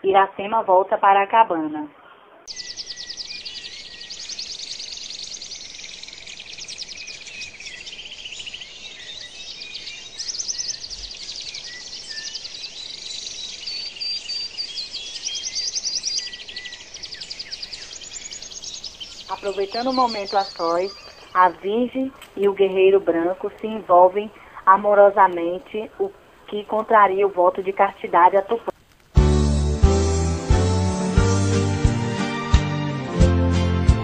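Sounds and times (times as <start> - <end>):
birds chirping and trilling: 0.0 - 28.7.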